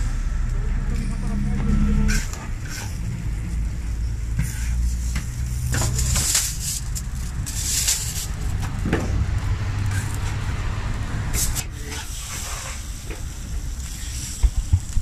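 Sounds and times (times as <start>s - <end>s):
low rumble of traffic: 0.0s - 15.0s
food sizzling on a griddle: 4.7s - 8.6s, 11.4s - 15.0s.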